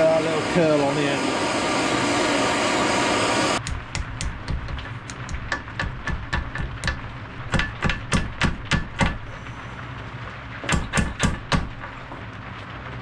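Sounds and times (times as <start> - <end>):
gas torch hissing: 0.0 - 4.0
hammer tapping metal strip: 3.6 - 9.2, 10.6 - 11.8.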